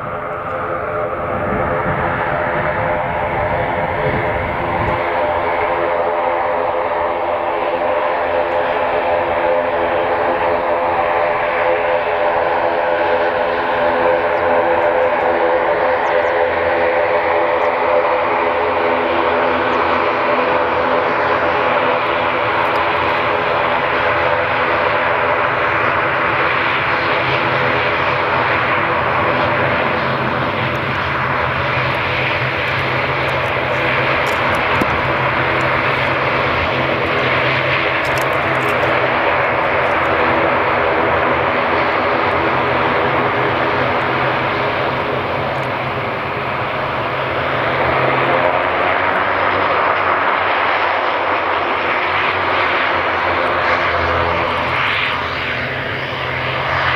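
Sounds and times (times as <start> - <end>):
propeller drone and turbine whine: 0.0 - 56.9
turboprop engines running: 0.0 - 56.9.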